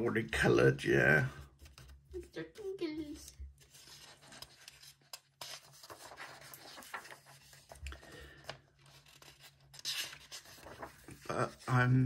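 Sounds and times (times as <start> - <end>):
paper page rustling: 1.4 - 12.0.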